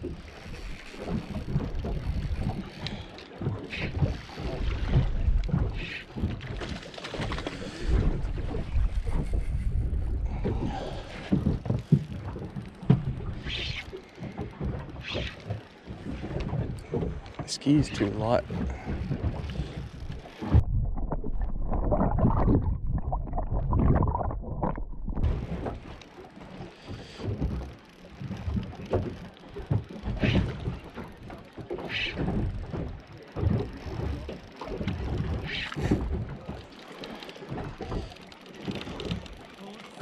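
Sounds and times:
water lapping against boat hull: 0:00.0 - 0:40.0
wind buffeting microphone: 0:07.8 - 0:15.0.

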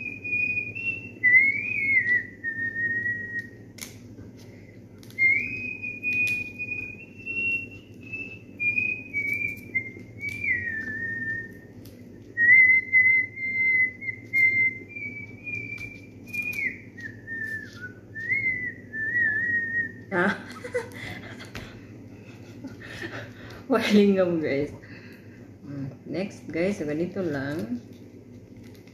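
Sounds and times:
person whistling a slow melody: 0:00.0 - 0:03.6, 0:05.1 - 0:11.7, 0:12.3 - 0:20.1.

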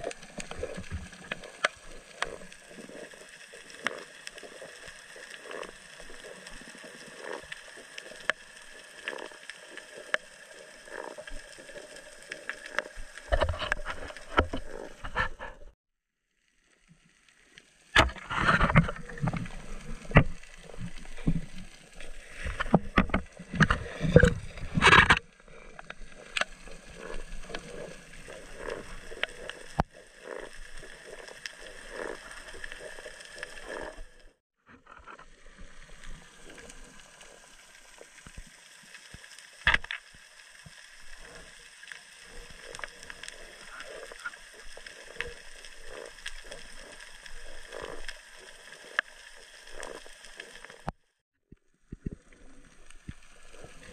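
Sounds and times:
underwater knocks and scrapes: 0:00.0 - 0:10.2, 0:10.9 - 0:15.8, 0:18.0 - 0:36.8, 0:49.7 - 0:53.9
underwater clicks: 0:00.0 - 0:15.6, 0:18.0 - 0:34.2, 0:39.1 - 0:40.1, 0:40.7 - 0:51.0
underwater crackle: 0:00.0 - 0:53.9.

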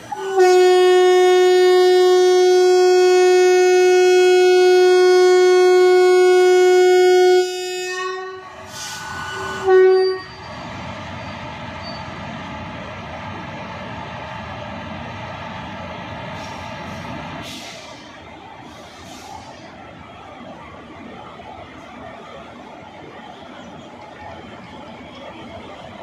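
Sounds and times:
locomotive air horn blasts: 0:00.0 - 0:10.5.

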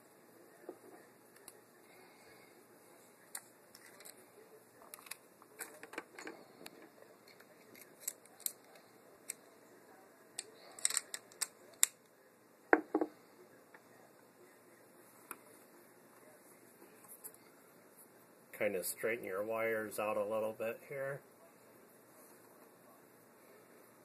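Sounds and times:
plastic parts clicking: 0:04.9 - 0:06.3, 0:10.8 - 0:12.0.

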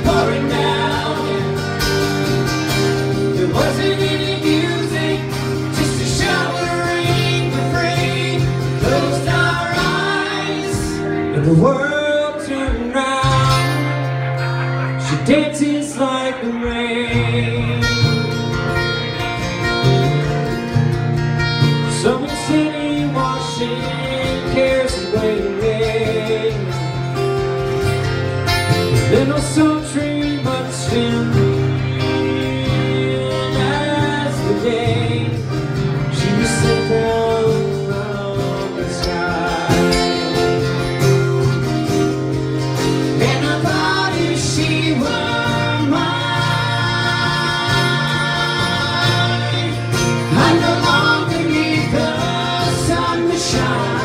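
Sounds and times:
man singing: 0:00.0 - 0:14.1, 0:15.0 - 0:18.4, 0:21.8 - 0:27.2, 0:28.9 - 0:41.0, 0:43.0 - 0:54.0
acoustic guitars playing: 0:00.0 - 0:54.0.

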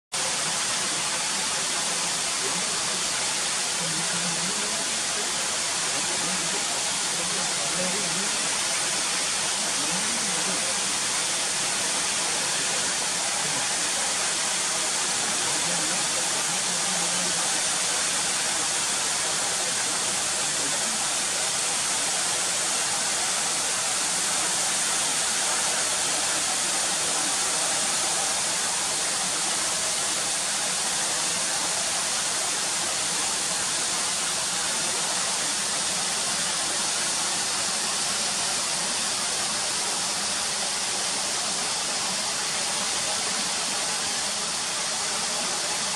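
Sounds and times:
waterfall rushing onto rocks: 0:00.2 - 0:45.9.

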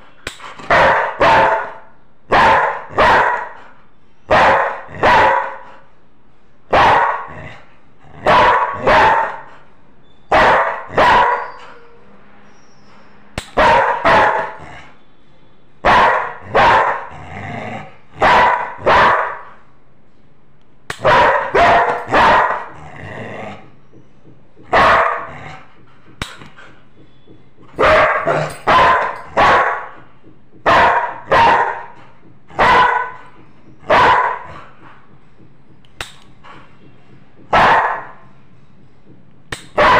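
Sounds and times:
dog barking: 0:00.6 - 0:03.6, 0:04.3 - 0:05.7, 0:06.7 - 0:07.4, 0:08.2 - 0:09.5, 0:10.3 - 0:11.6, 0:13.5 - 0:14.7, 0:15.8 - 0:17.1, 0:18.2 - 0:19.5, 0:21.0 - 0:22.7, 0:24.7 - 0:25.4, 0:27.8 - 0:30.0, 0:30.6 - 0:33.2, 0:33.8 - 0:34.6, 0:37.5 - 0:38.2.

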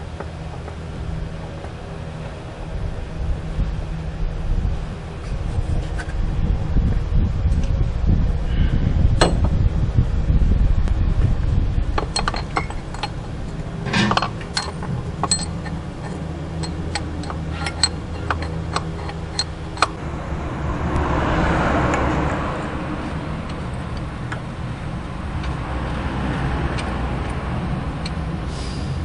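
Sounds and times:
low hum: 0:00.0 - 0:29.0
ratchet wrench clicking: 0:14.1 - 0:20.0.

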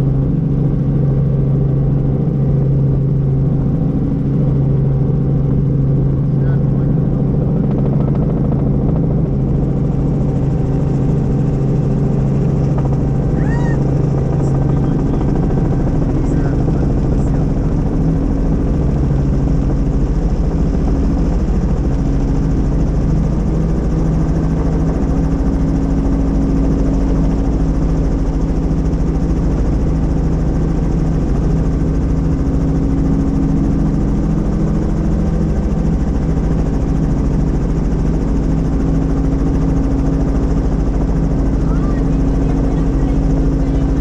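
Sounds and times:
helicopter engine and rotor: 0:00.0 - 0:44.0.

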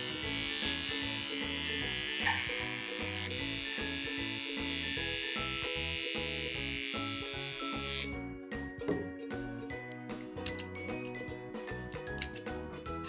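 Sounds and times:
pet clipper buzzing: 0:00.0 - 0:08.2
light background music: 0:00.0 - 0:13.0.

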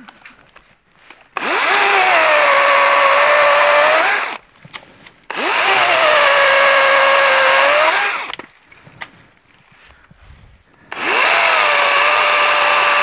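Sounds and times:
chainsaw whining cutting wood: 0:01.4 - 0:04.4, 0:05.3 - 0:08.4, 0:10.9 - 0:13.0.

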